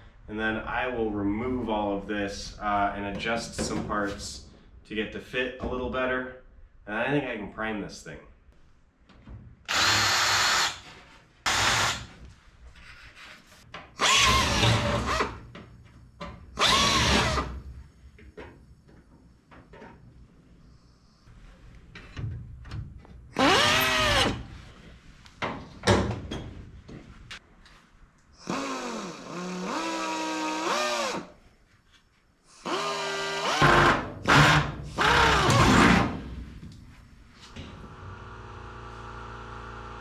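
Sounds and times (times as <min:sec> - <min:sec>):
power drill drilling into metal: 0:09.7 - 0:10.9, 0:11.5 - 0:12.1, 0:14.0 - 0:15.3, 0:16.6 - 0:17.4.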